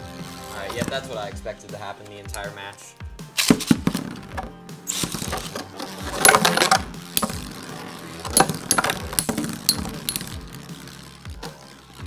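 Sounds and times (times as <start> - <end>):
spinning tops rattling in plastic stadium: 0.3 - 1.3, 2.1 - 12.0.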